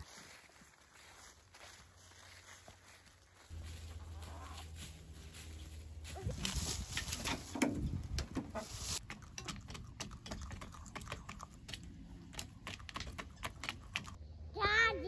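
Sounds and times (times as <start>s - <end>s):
hens pecking feed from metal pan: 6.5s - 14.2s.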